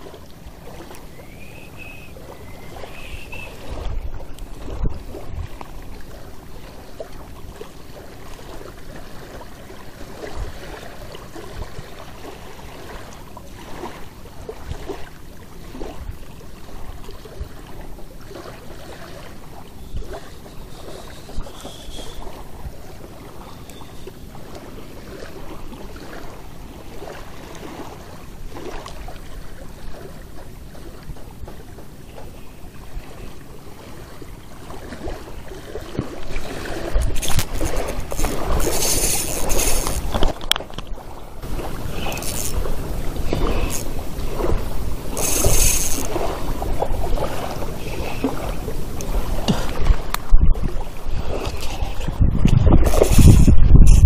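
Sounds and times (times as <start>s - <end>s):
waves lapping against rocks: 0.0s - 54.0s.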